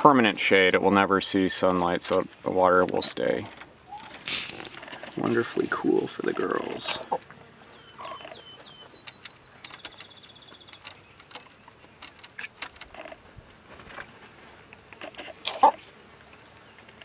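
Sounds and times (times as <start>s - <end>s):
hens clucking: 3.8s - 9.8s, 15.1s - 15.9s
sharp clicks: 8.3s - 13.2s.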